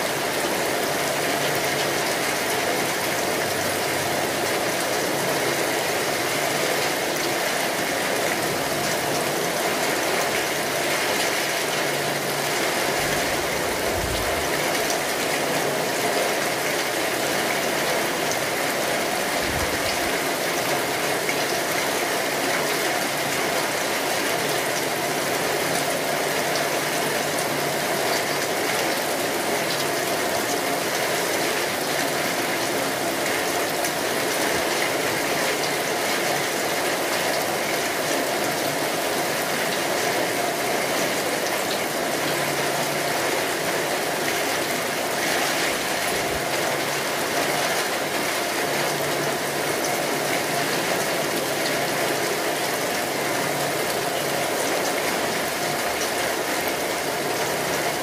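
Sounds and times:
heavy rain: 0:00.0 - 0:58.0.

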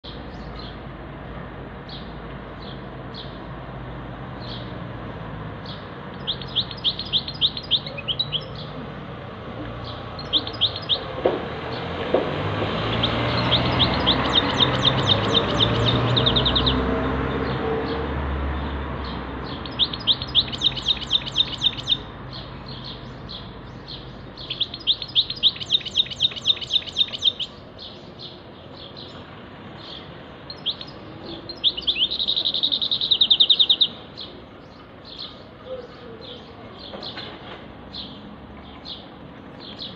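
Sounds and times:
songbird trilling: 0:05.6 - 0:08.8, 0:09.8 - 0:11.8, 0:12.8 - 0:16.8, 0:19.4 - 0:29.2, 0:29.8 - 0:37.2.

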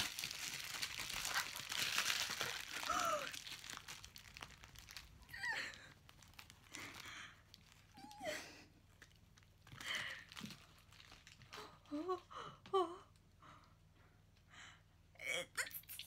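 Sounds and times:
packaging crinkling and tearing: 0:00.0 - 0:08.1, 0:08.9 - 0:11.8.

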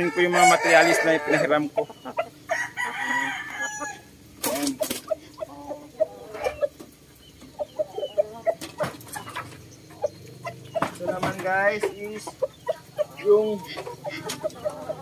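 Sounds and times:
rooster crowing: 0:00.0 - 0:01.6, 0:02.5 - 0:04.1
hens clucking: 0:00.0 - 0:15.0
sharp knocks: 0:10.8 - 0:11.6.

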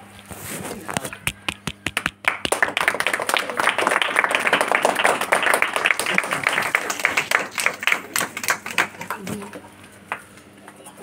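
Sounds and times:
audience applauding: 0:01.9 - 0:10.2.

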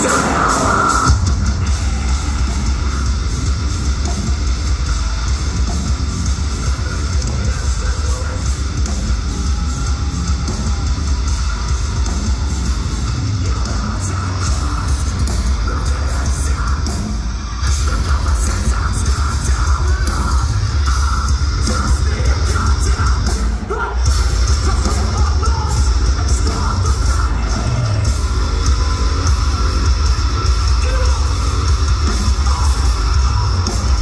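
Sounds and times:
harsh yelled vocals: 0:00.0 - 0:03.4, 0:06.6 - 0:34.0
metal band playing: 0:00.0 - 0:34.0.

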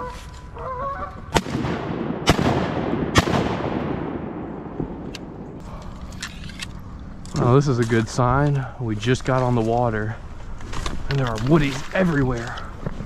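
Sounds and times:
bird calling: 0:00.0 - 0:01.3
shotgun shots echoing: 0:01.3 - 0:05.6.

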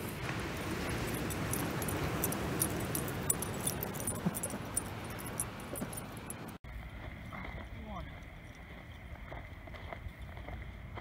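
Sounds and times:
surf breaking on shore: 0:00.0 - 0:03.2.

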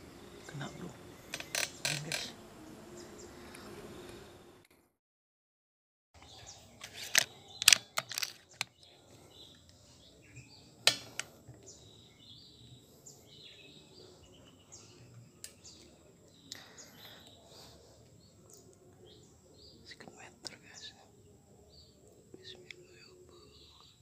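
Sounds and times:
faint bird chirps: 0:00.0 - 0:03.8, 0:06.2 - 0:24.0
clicks and knocks of handling rifle: 0:06.8 - 0:08.8.

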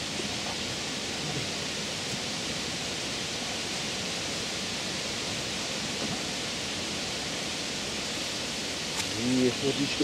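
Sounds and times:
steady outdoor hiss: 0:00.0 - 0:10.0.

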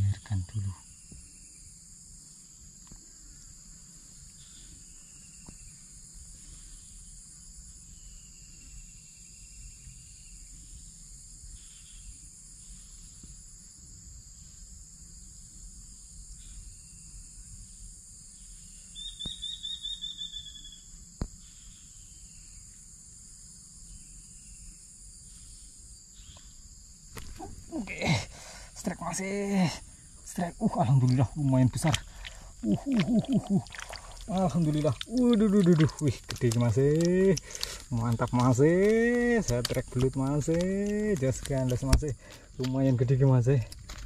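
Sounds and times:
insects chorus: 0:00.0 - 0:44.0.

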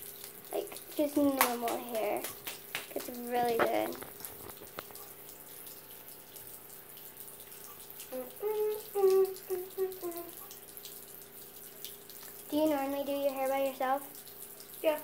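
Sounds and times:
tap water running into sink: 0:00.0 - 0:15.0
person speaking: 0:00.5 - 0:04.3.

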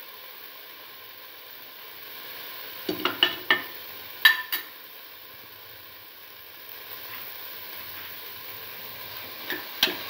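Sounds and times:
tomatoes sizzling in a frying pan: 0:00.0 - 0:10.0
spoon knocking against pan: 0:02.9 - 0:04.7, 0:09.5 - 0:10.0.

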